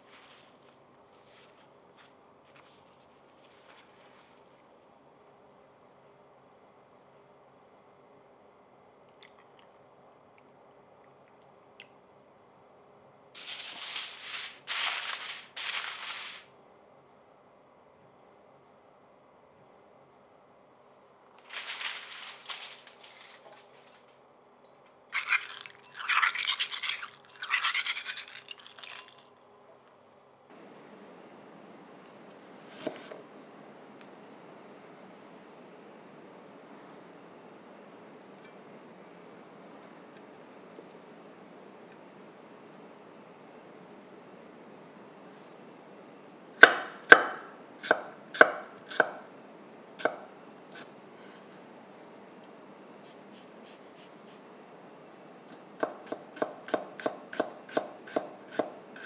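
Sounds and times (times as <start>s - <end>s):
aluminium foil being crumpled: 13.4s - 16.5s, 21.4s - 24.1s
clams rubbed together in water: 25.2s - 28.8s.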